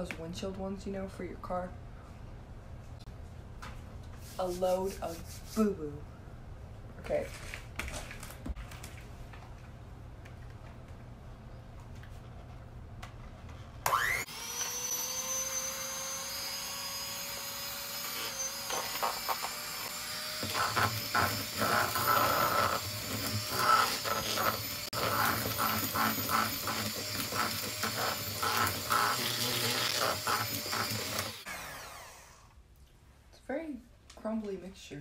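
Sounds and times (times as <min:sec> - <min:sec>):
electric hand mixer motor whining: 0:13.8 - 0:32.5.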